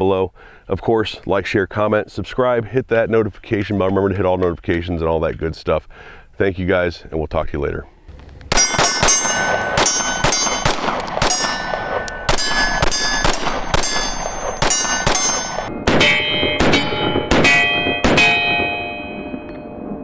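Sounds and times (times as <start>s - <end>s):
pistol shots: 8.4s - 18.8s
metallic ringing: 8.5s - 20.0s.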